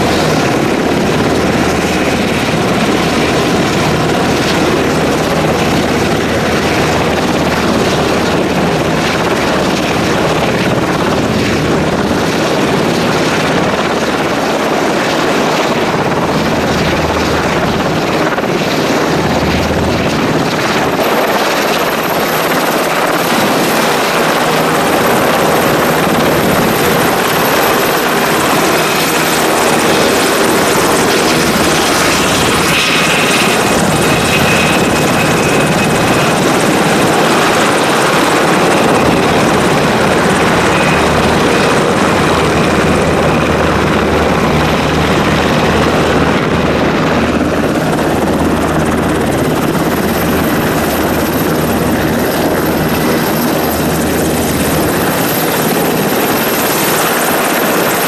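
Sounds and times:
helicopter engines and rotors: 0:00.0 - 0:58.0.

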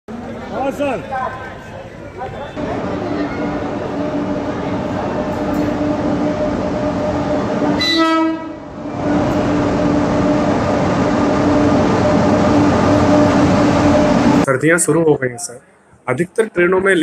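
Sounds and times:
train running with hum: 0:00.1 - 0:15.0
train horn blast: 0:07.8 - 0:08.7.

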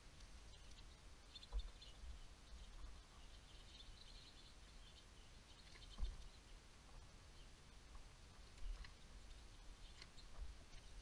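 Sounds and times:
soft low thump: 0:05.9 - 0:06.3.

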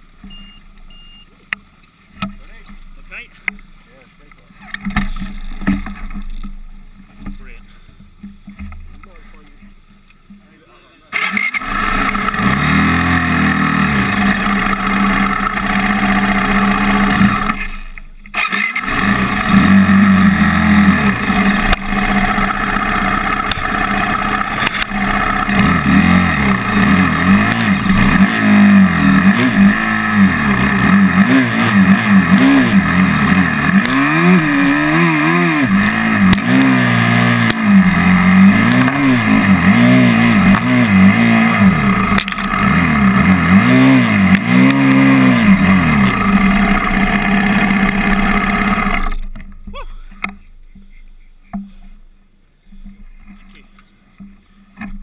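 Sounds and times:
motorcycle engine throttle blips: 0:11.1 - 0:52.1.

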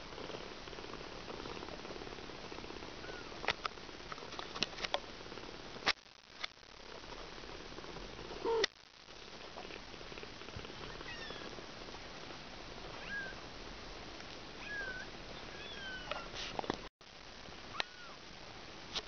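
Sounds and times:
kitten mewing: 0:08.4 - 0:08.8, 0:10.8 - 0:11.5.

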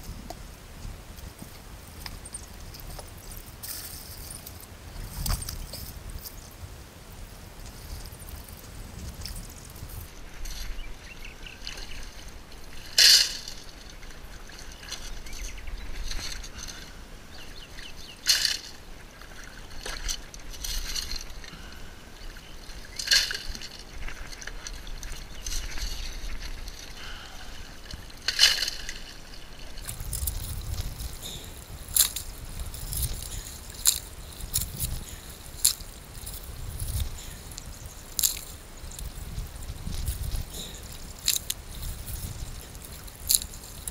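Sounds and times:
water sloshing and trickling: 0:07.6 - 0:43.9.

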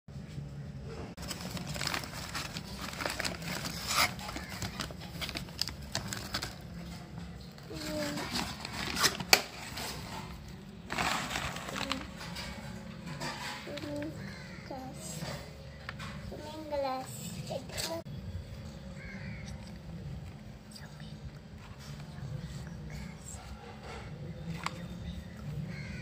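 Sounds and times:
paper ripping: 0:01.2 - 0:06.6, 0:07.8 - 0:10.2, 0:10.9 - 0:12.4
paper mailer crinkling: 0:01.2 - 0:07.1, 0:07.7 - 0:13.5.

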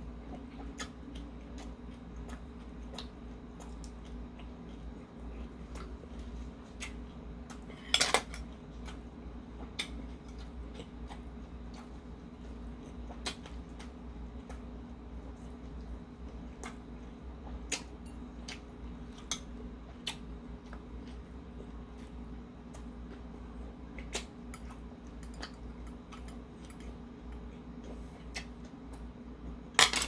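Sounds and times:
chewing: 0:00.0 - 0:29.6.

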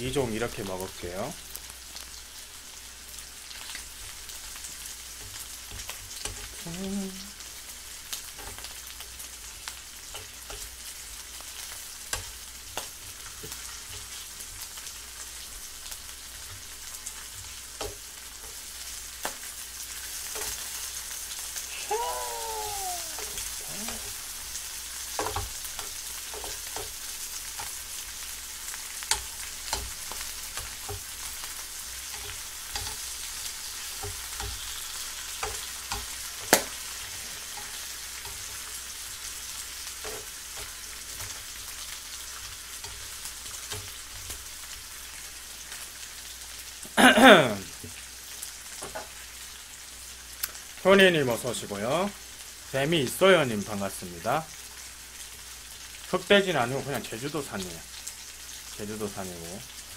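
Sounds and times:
meat sizzling in a frying pan: 0:00.0 - 0:59.9
metal tongs scraping a pan: 0:28.9 - 0:38.9, 0:39.5 - 0:41.4.

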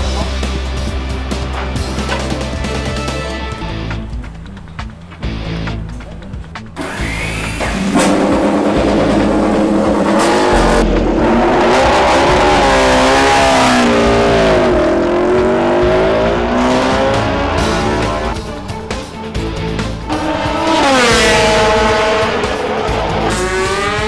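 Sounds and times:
background music: 0:00.0 - 0:24.0
motorcycle engine revving: 0:06.8 - 0:24.0.

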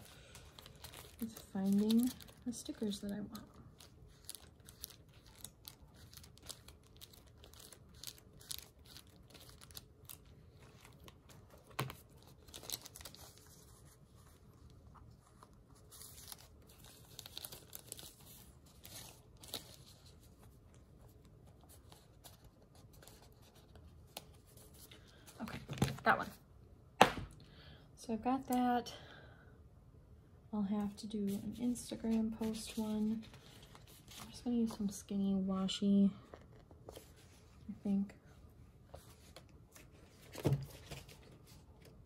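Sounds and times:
paper sheets rustling and crinkling: 0:00.0 - 0:20.6, 0:31.3 - 0:35.1, 0:38.9 - 0:42.0.

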